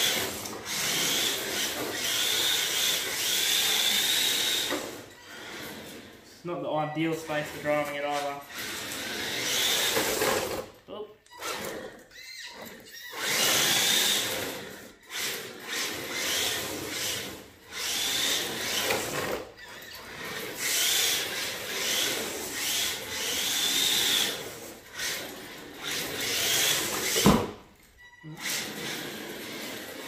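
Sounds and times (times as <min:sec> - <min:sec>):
electric motor whine: 0:00.0 - 0:06.1, 0:13.1 - 0:27.4
plastic tyres sliding on concrete: 0:28.5 - 0:30.0.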